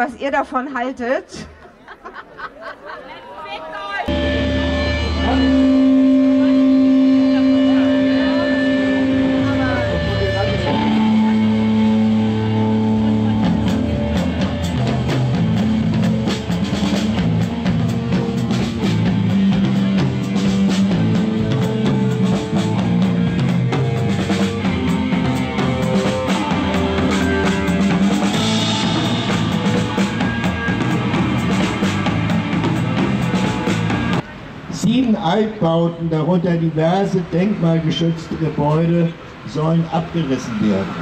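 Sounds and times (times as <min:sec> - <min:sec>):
bass guitar: 0:04.1 - 0:34.2
drum kit: 0:04.1 - 0:34.2
electric guitar: 0:04.1 - 0:34.2.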